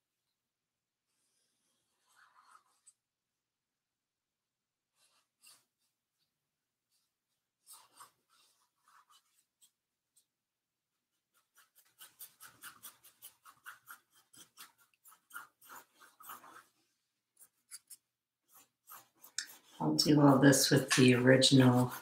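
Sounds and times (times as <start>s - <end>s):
paintbrush scrubbing on canvas: 1.0s - 3.2s, 4.8s - 22.0s
light brush dabs: 5.0s - 10.4s, 11.1s - 22.0s.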